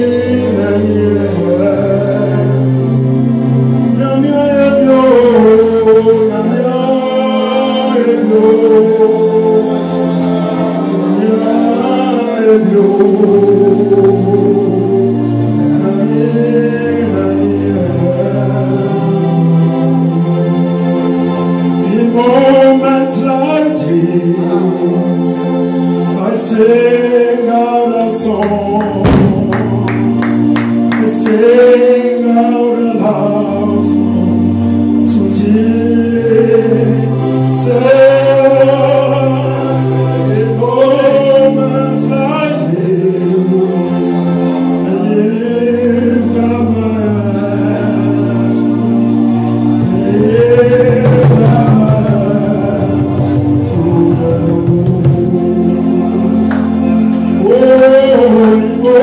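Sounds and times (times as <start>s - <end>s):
man singing gospel song: 0.0s - 20.6s, 21.5s - 59.0s
sustained low instrumental accompaniment: 0.0s - 59.0s
quick percussion hits: 29.0s - 30.2s.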